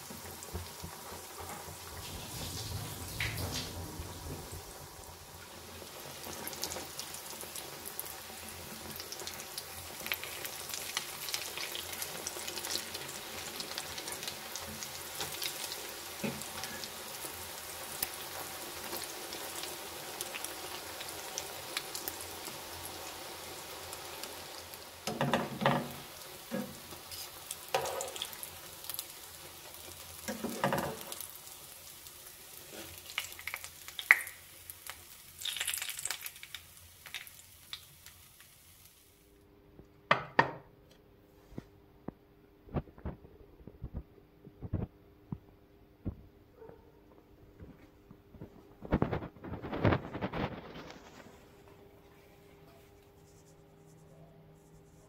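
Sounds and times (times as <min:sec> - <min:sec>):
bread sizzling in hot oil: 0:00.0 - 0:39.3
utensils knocking and scraping pan: 0:25.1 - 0:26.8, 0:30.3 - 0:31.1.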